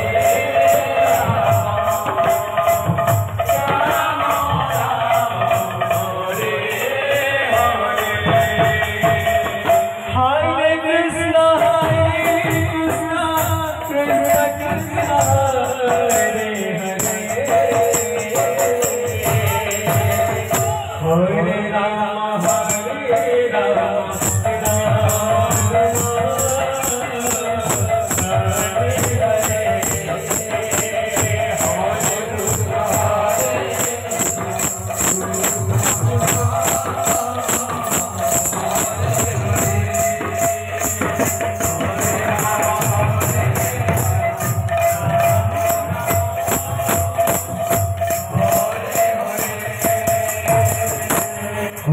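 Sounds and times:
drum beating: 0.0s - 10.1s, 11.5s - 21.0s, 24.1s - 51.9s
man chanting a devotional song: 0.0s - 51.9s.

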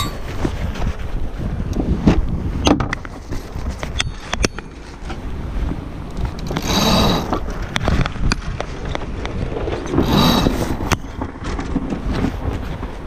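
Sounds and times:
rattling rushing bursts: 6.1s - 13.0s.

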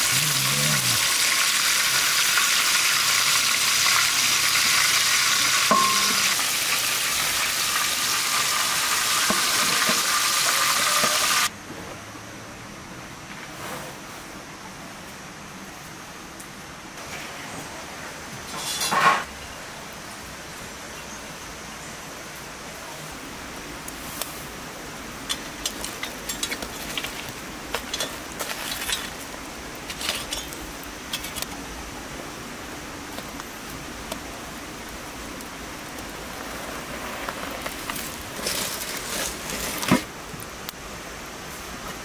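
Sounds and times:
rain hissing: 0.0s - 11.5s, 15.5s - 42.0s
metallic clank on a tray: 5.7s - 6.4s
aluminium foil crinkling: 25.3s - 31.5s, 37.5s - 40.1s.

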